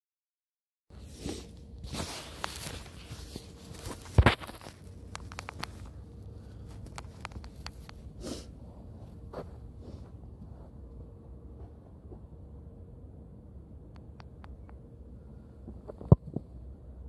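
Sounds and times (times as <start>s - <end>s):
footsteps: 1.9s - 6.0s, 8.7s - 12.4s.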